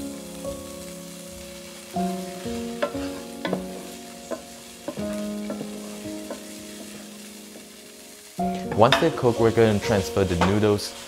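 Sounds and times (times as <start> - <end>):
vegetables sizzling in oil: 0.0 - 11.0
spatula scraping and tapping pan: 2.6 - 7.7.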